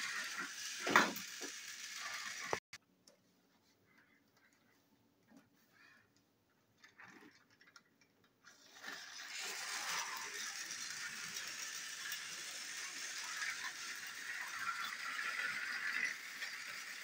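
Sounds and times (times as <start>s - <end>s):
toy train motors whirring: 0.0s - 2.8s, 8.4s - 17.0s.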